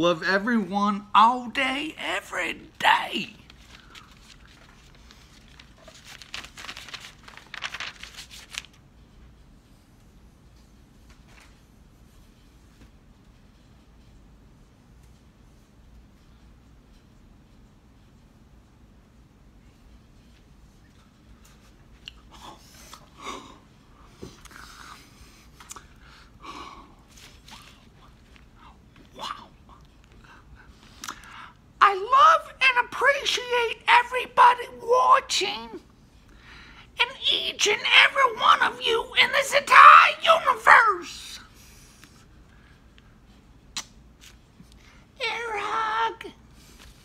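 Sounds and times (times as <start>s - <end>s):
rustling crinkling noise: 3.3s - 17.2s, 27.0s - 29.2s, 41.8s - 44.8s, 46.5s - 47.0s.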